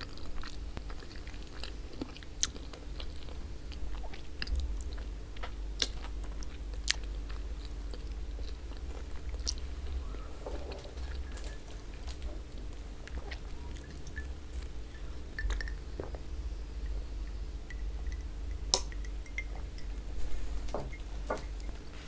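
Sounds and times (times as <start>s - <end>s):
glass mug clinking: 13.8s - 15.9s, 17.6s - 20.0s.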